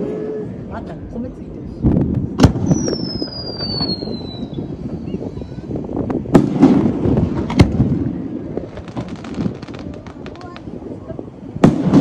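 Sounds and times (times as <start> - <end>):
firework whistle falling: 2.6 - 4.7.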